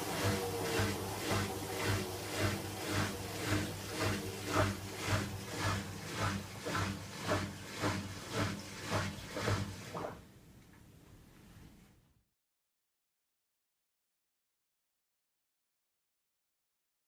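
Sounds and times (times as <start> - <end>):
washer-dryer drum turning: 0.0 - 10.2.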